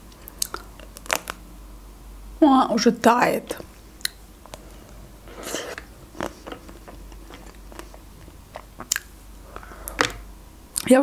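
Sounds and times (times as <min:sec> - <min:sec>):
chewing: 0:00.3 - 0:01.4, 0:04.0 - 0:10.2
chocolate shell crunching: 0:00.3 - 0:01.4, 0:05.4 - 0:10.2.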